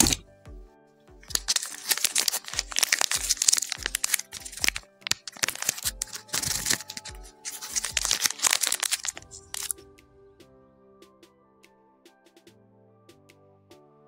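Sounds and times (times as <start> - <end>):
wrapper crinkling and tearing: 0.0 - 0.2, 1.3 - 9.8
soft background music: 0.0 - 14.0.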